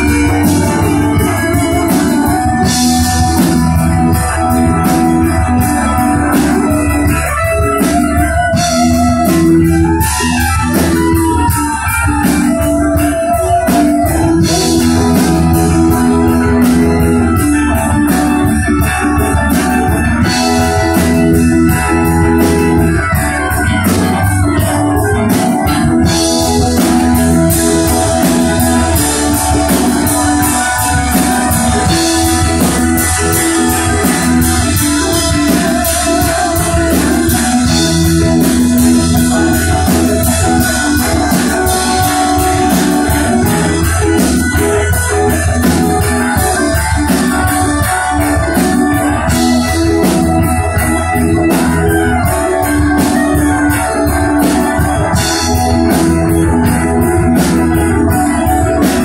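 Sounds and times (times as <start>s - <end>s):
bass guitar: 0.0s - 59.0s
drums and cymbals: 0.0s - 59.0s
electric guitar: 0.0s - 59.0s
organ-like keyboard chords: 0.0s - 59.0s.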